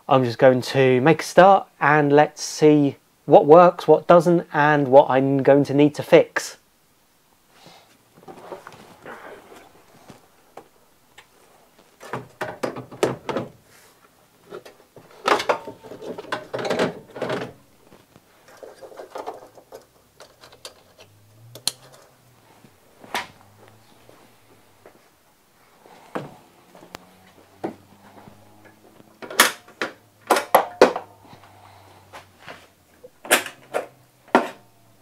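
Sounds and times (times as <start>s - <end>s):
plastic panels knocking and clicking: 12.0s - 13.6s, 14.5s - 17.6s, 29.2s - 31.1s.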